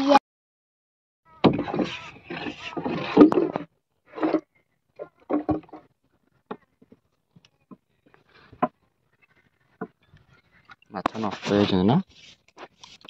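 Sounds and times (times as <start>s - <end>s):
wooden knocks in boat: 1.4s - 4.4s, 5.3s - 5.9s.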